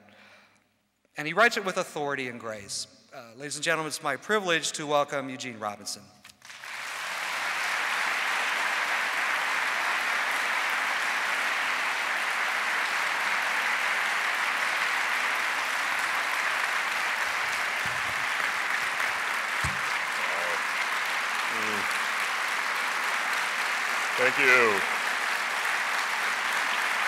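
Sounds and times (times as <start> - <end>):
audience applauding: 6.4 - 27.0
low thump: 19.6 - 20.0.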